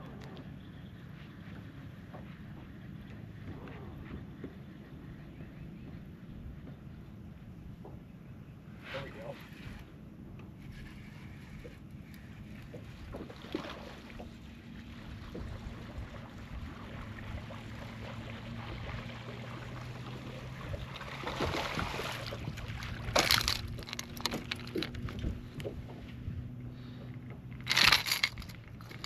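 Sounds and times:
low steady hum: 0.0 - 29.0
water lapping around boat: 0.0 - 29.0
sharp water splash: 21.0 - 23.3
wind on microphone: 21.4 - 26.6.

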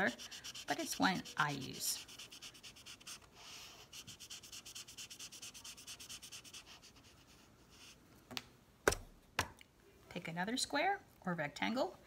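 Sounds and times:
marker scratching on paper: 0.0 - 8.0.

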